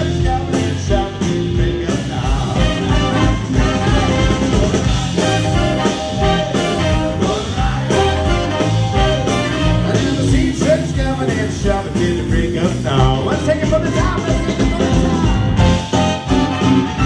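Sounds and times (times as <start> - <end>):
electric bass: 0.0 - 17.0
keyboard: 0.0 - 17.0
steady drum beat: 0.0 - 17.0
trombone: 0.0 - 17.0
saxophone: 2.3 - 10.4, 13.8 - 17.0
trumpet: 2.5 - 10.7, 13.5 - 17.0.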